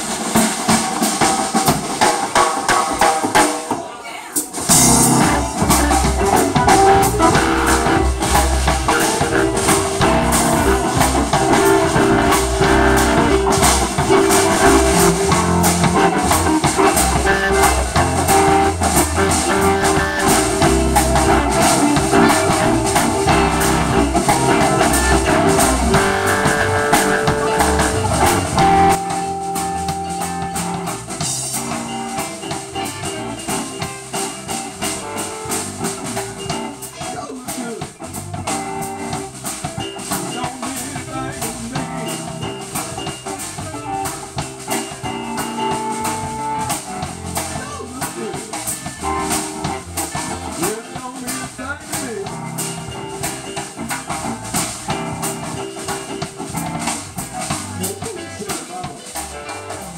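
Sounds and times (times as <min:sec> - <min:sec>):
blues band playing: 0:00.0 - 0:59.9
drums and cymbals: 0:00.0 - 0:59.9
electric guitar lines: 0:04.7 - 0:36.9.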